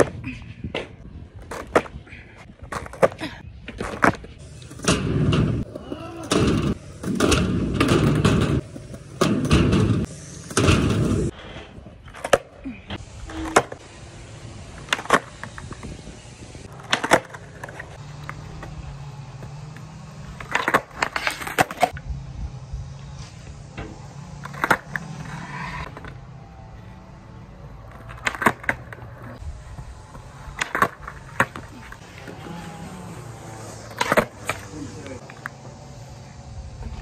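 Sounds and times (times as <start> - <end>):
skateboard wheels rolling on concrete: 0.0 - 37.0.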